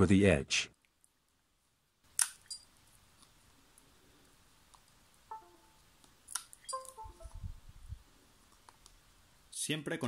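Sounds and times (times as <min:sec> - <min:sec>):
two-note descending computer chime: 0:05.3 - 0:05.8, 0:06.7 - 0:07.5.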